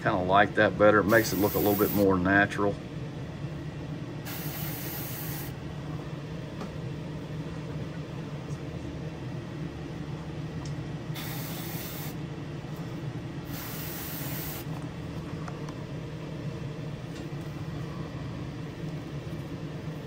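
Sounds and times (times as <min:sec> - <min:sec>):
exhaust fan hum: 0:00.0 - 0:20.0
airbrush spraying hiss: 0:01.1 - 0:02.1, 0:04.3 - 0:05.6, 0:11.2 - 0:12.2, 0:13.5 - 0:14.7.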